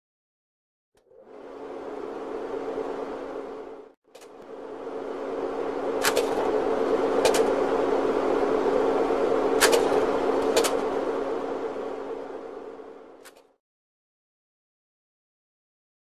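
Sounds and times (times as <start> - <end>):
noisy drone: 1.0 - 13.6
steady low hum: 1.0 - 13.6
sharp clicks: 9.6 - 10.9.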